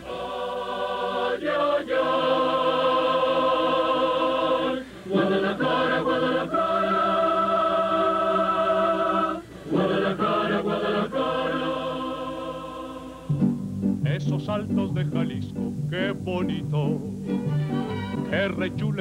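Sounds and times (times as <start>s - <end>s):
mariachi music: 4.4s - 19.0s.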